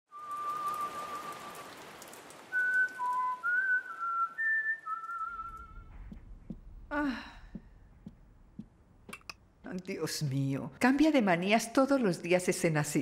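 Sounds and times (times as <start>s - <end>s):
whistled melody: 0.1s - 1.8s, 2.5s - 6.0s.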